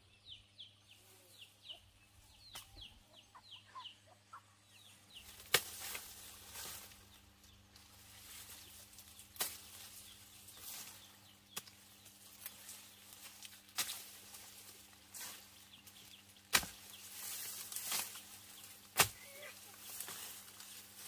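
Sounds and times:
rustling: 0:05.2 - 0:21.0.

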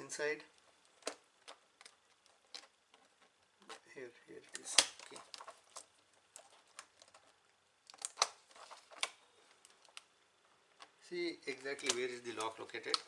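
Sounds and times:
plastic keyboard clicks and snaps: 0:07.9 - 0:09.2, 0:11.6 - 0:13.0.

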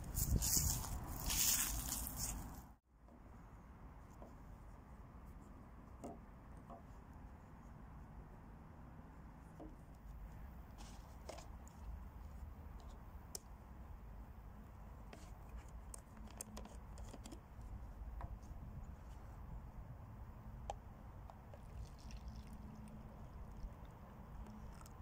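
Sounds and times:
plastic screw cap twisting: 0:15.8 - 0:17.4.

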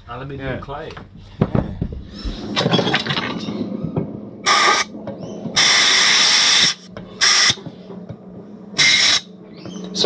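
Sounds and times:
compressed air blasts hissing: 0:04.4 - 0:04.9, 0:05.6 - 0:07.6, 0:08.8 - 0:09.3.

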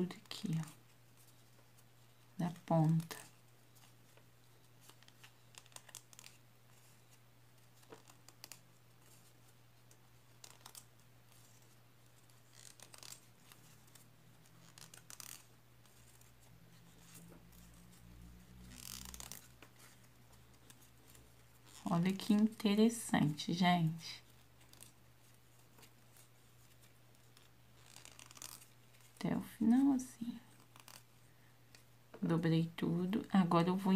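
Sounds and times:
paper rustling and crinkling: 0:02.8 - 0:22.6, 0:24.2 - 0:29.2.

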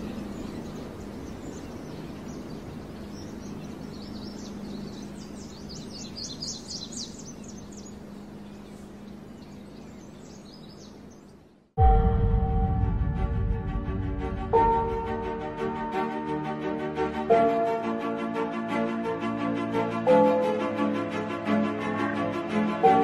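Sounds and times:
low hum: 0:11.8 - 0:17.4.

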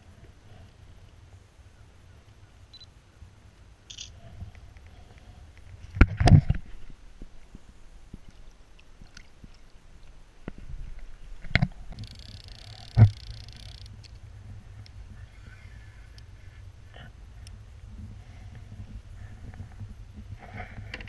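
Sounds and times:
low steady rumble: 0:00.0 - 0:21.0.

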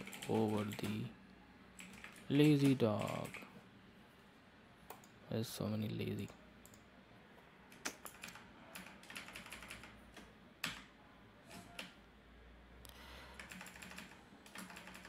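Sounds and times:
faint keyboard typing: 0:00.0 - 0:03.6, 0:04.8 - 0:05.2, 0:06.1 - 0:06.9, 0:07.7 - 0:12.0, 0:12.8 - 0:15.0.

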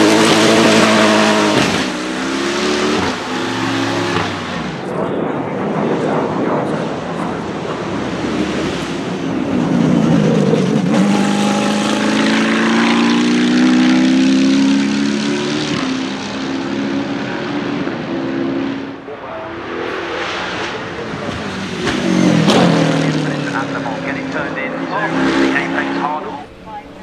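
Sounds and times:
racing car engine driving past: 0:06.9 - 0:27.0.

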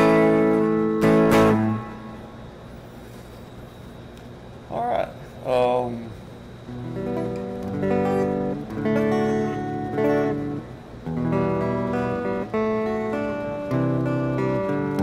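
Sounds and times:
electric guitar chords: 0:00.0 - 0:02.6, 0:06.6 - 0:15.0.

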